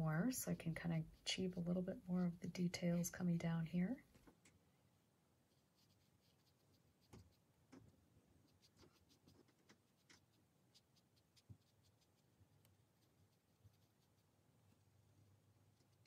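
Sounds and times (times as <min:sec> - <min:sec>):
brush ticking on paper: 0:05.4 - 0:07.5, 0:08.4 - 0:14.4, 0:15.7 - 0:16.0.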